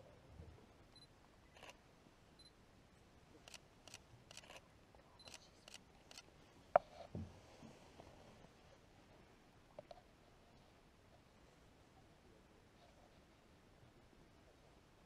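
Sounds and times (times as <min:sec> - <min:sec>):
faint clicks and ticks: 0:03.4 - 0:04.6.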